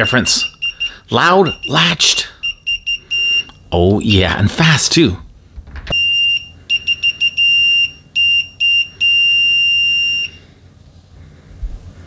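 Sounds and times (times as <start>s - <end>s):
high-pitched meter beeps: 0.0s - 3.6s, 5.9s - 10.4s.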